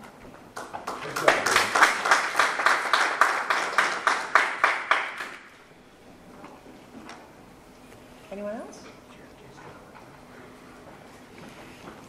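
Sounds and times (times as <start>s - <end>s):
audience applauding: 0.6s - 5.6s.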